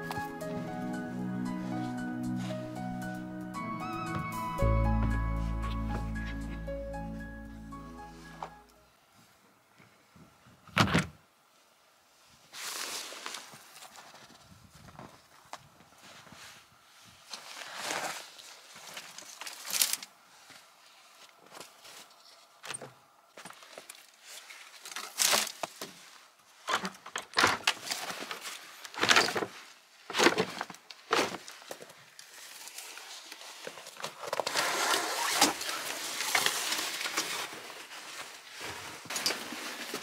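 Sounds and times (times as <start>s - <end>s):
footsteps in snow: 0.0s - 8.6s, 35.8s - 40.0s
scuffing: 4.0s - 8.6s.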